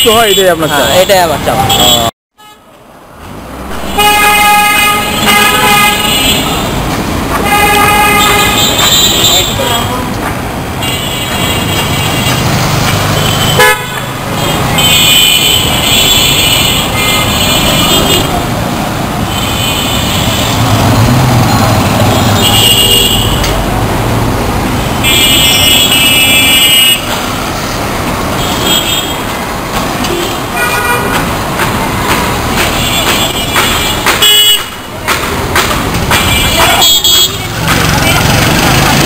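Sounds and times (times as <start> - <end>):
car horns honking: 0.0 - 2.7, 3.8 - 10.0, 10.7 - 18.4, 19.2 - 23.6, 24.8 - 27.3, 28.3 - 29.4, 30.0 - 38.3
traffic noise: 0.0 - 39.0
sharp knock: 31.2 - 36.5.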